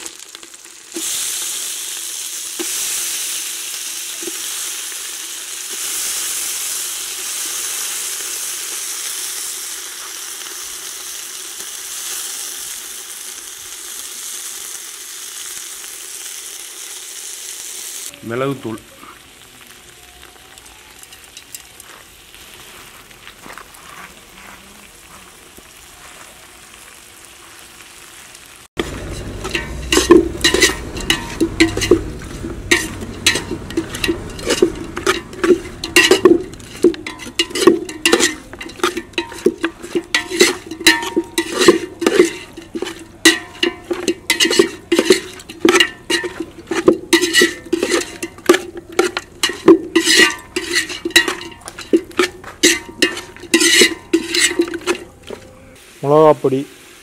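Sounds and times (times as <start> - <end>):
chicken frying in a pot: 0.0 - 57.0
metal spoon scraping a pot: 28.8 - 55.5.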